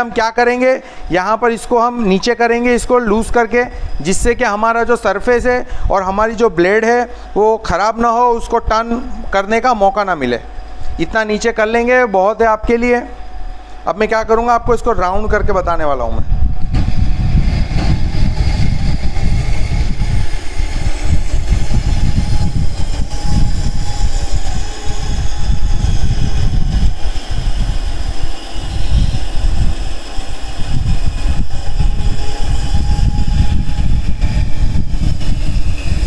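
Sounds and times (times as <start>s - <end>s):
band saw cutting wood: 16.7s - 36.0s.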